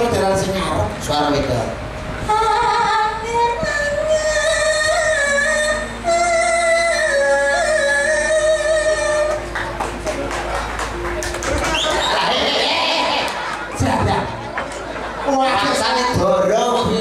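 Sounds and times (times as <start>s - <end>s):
low backing notes: 0.0s - 17.0s
high voice singing held notes: 2.2s - 9.5s.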